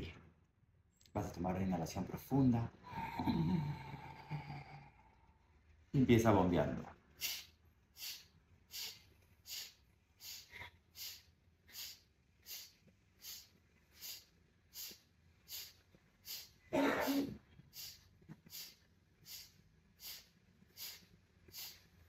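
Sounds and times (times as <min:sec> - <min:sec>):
forceful nasal exhalations: 0:02.8 - 0:05.2, 0:07.2 - 0:22.0.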